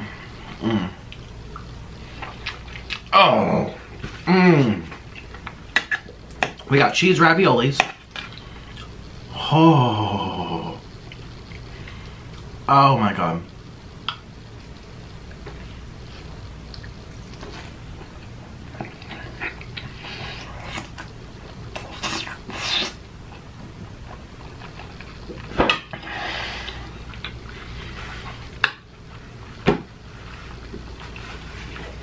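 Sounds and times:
steady low hum: 0.0s - 32.0s
person chewing: 0.4s - 3.1s, 8.2s - 9.1s, 16.1s - 28.3s.

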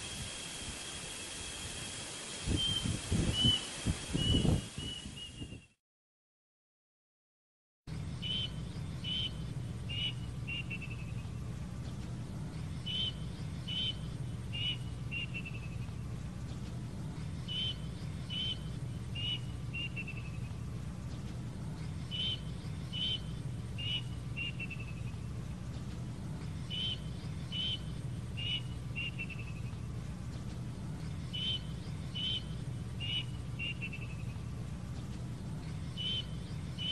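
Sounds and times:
low hum: 0.0s - 5.8s, 7.9s - 36.9s
cuckoo calling: 12.8s - 15.9s, 21.9s - 25.2s, 26.6s - 29.8s, 31.2s - 34.5s, 35.9s - 36.9s.

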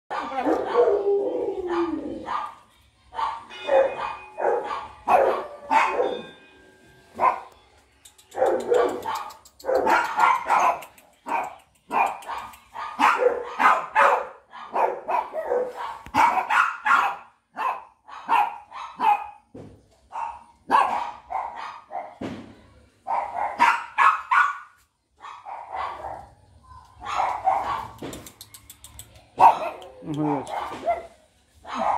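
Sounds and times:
puppies yapping and barking: 27.0s - 31.9s.

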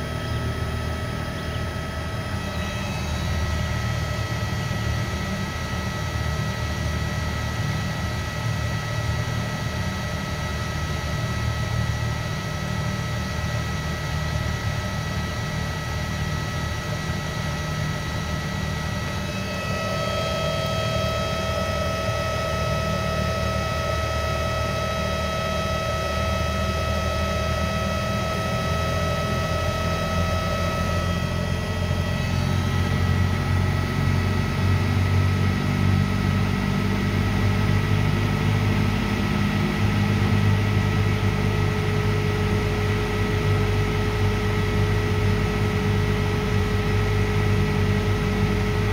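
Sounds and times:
electric motor whining: 18.8s - 25.2s.

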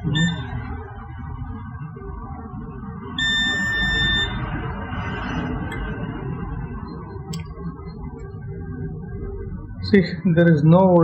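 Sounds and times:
multimeter beep: 0.0s - 0.7s, 3.1s - 4.5s.

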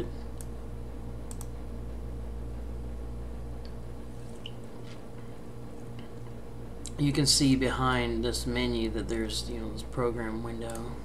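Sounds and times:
low pulsing hum: 0.0s - 11.0s
computer mouse clicks: 1.3s - 1.5s.

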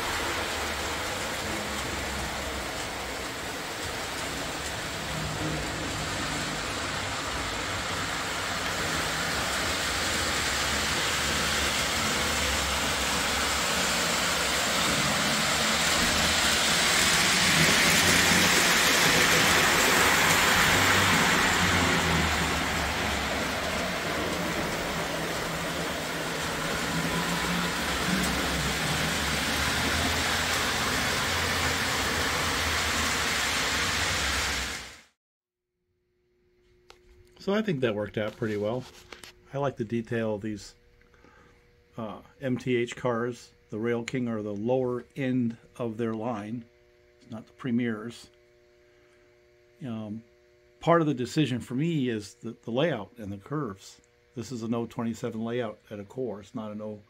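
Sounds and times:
model train wheels rumbling on rail: 0.0s - 35.1s
motor hum: 0.0s - 35.1s.

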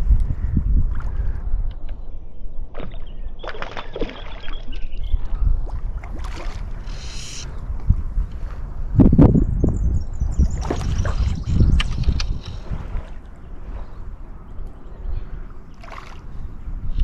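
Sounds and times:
wind and water rumble: 0.0s - 17.0s.

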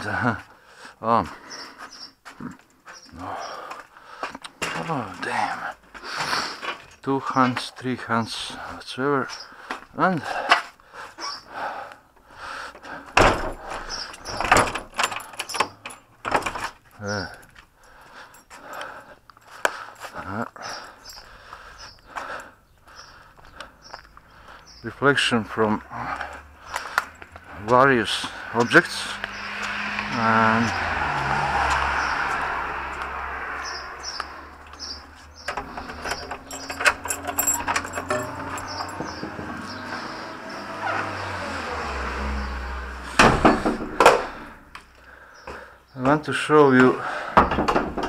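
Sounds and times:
keys rattling in door lock: 13.2s - 19.1s, 20.0s - 21.3s, 34.7s - 39.8s
small bird chirping: 33.6s - 36.7s
door knocking and rattling: 35.6s - 39.6s, 43.2s - 44.2s, 47.4s - 48.0s.

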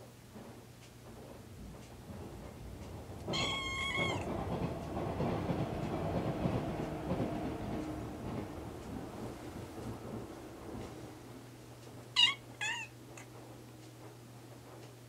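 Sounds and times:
low rumbling noise: 1.0s - 11.8s
cat meowing: 3.3s - 4.3s, 12.2s - 12.9s.

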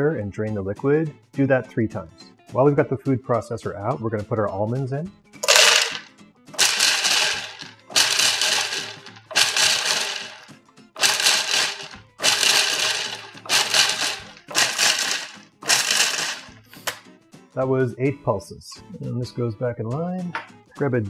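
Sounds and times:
food processor chopping nuts: 5.4s - 17.0s.

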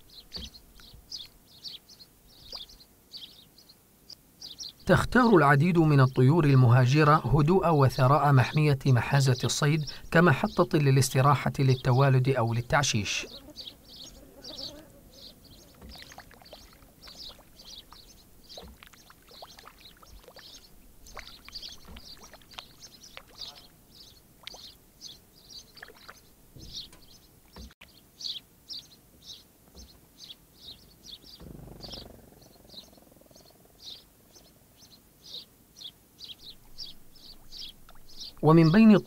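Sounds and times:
birds chirping: 0.0s - 39.0s
water clicks and splashes: 15.8s - 23.7s, 24.4s - 24.7s, 25.7s - 26.3s.

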